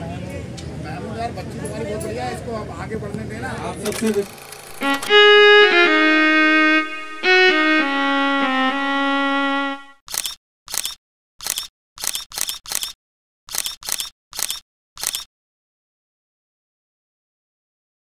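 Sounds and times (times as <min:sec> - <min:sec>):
camera shutter clicks: 0:03.8 - 0:05.1, 0:10.1 - 0:15.3
background music held notes: 0:04.8 - 0:10.0.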